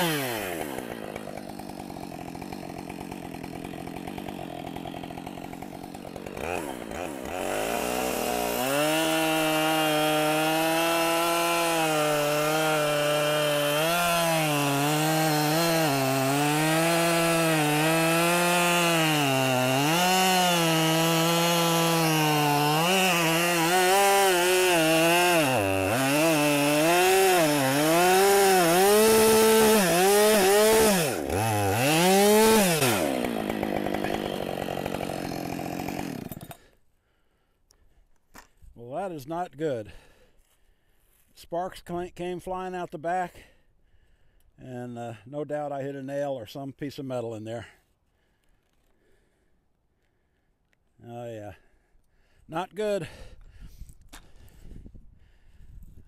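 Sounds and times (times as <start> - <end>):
chainsaw cutting log: 0.0 - 36.8.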